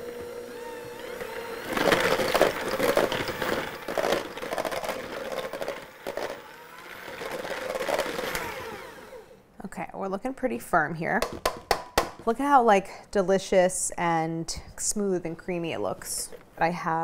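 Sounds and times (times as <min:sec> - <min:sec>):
electric hand mixer whipping: 0:00.0 - 0:09.4.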